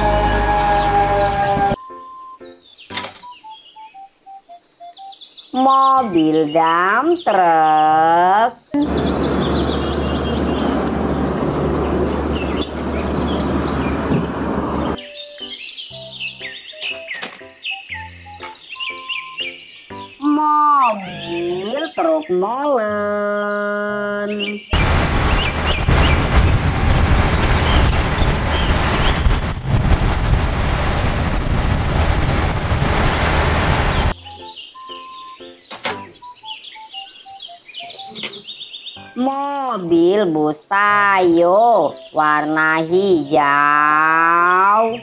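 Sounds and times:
road noise: 0.0 - 1.8, 8.8 - 15.0, 24.7 - 34.2
birds chirping: 0.5 - 29.4, 33.8 - 45.0
diesel truck engine running: 8.8 - 15.0, 24.8 - 34.2.

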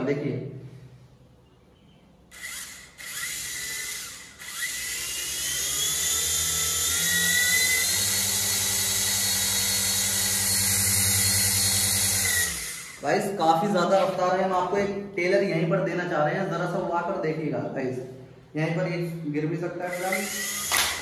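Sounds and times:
toy helicopter motor whine: 2.3 - 13.0, 19.9 - 21.0.

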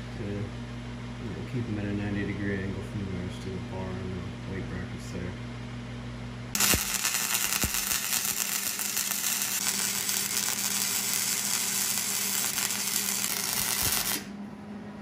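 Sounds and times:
low steady hum: 0.0 - 15.0
welder arc crackling: 6.6 - 14.3.

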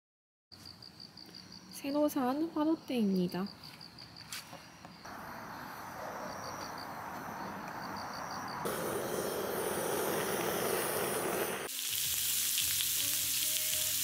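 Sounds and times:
crickets chirping: 0.6 - 11.7
butane torch hissing: 8.6 - 14.0.

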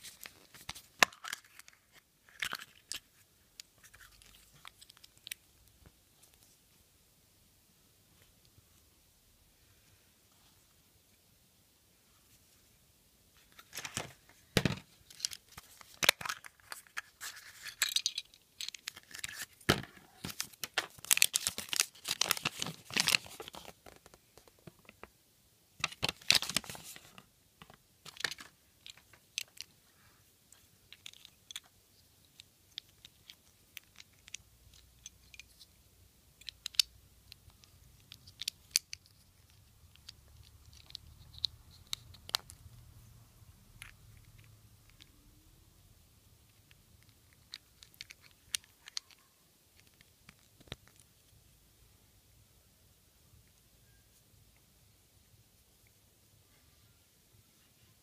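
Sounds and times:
paper crinkling and rustling: 15.0 - 24.7, 25.8 - 27.2
plastic pieces clicking: 15.1 - 19.5, 30.9 - 35.7, 36.4 - 42.6, 46.5 - 51.0.

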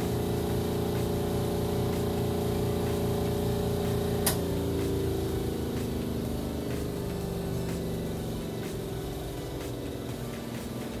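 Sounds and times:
spin-dryer motor humming: 0.0 - 11.0
sharp click: 4.2 - 4.5.

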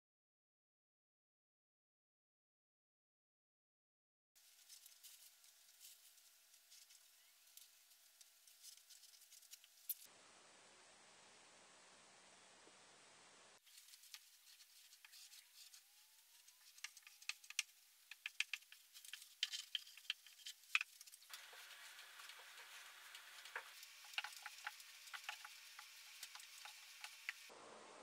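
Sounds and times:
crackling of handled insulation: 4.4 - 10.1, 13.6 - 27.5.

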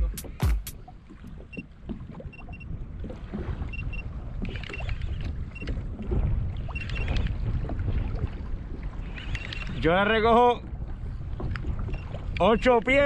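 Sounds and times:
wind and water on microphone: 0.0 - 13.0
fishing reel: 9.1 - 9.8.

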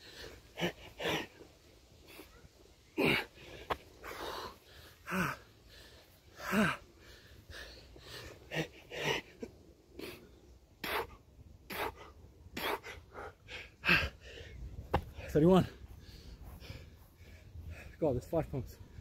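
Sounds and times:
man breathing hard: 0.0 - 2.4, 3.0 - 18.0
man grunting: 3.0 - 3.3.

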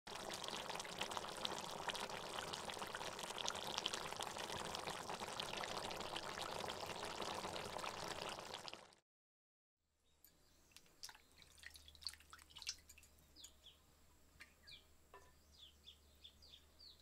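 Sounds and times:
sauce bubbling in a pan: 0.1 - 9.0, 10.8 - 13.2.

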